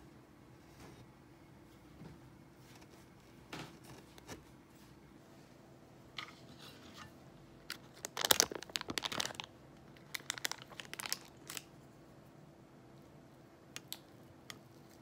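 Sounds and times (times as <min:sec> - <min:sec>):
paper wrapper crinkling: 0:07.6 - 0:11.8
crisp pastry crunching: 0:07.7 - 0:11.8.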